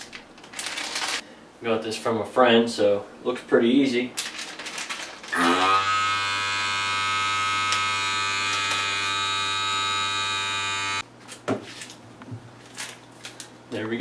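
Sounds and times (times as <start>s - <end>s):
vacuum sealer pump running: 5.3s - 11.0s.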